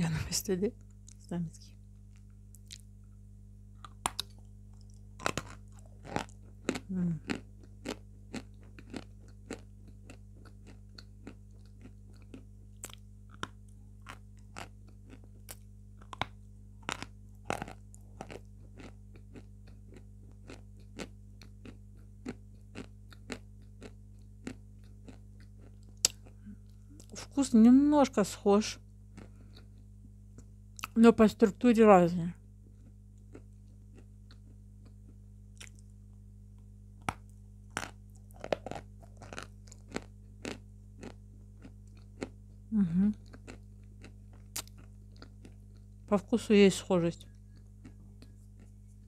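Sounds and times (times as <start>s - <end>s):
chalk being chewed: 37.8s - 42.3s, 43.2s - 45.9s, 47.2s - 49.0s.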